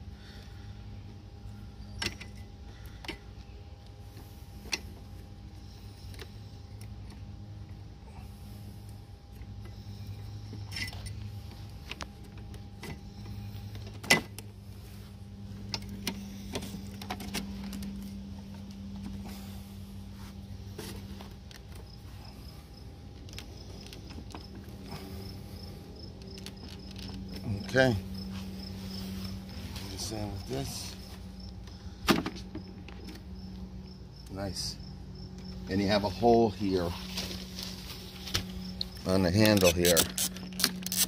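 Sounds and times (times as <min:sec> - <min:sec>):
steady low hum: 0:00.0 - 0:41.0
insect chirping: 0:14.6 - 0:41.0.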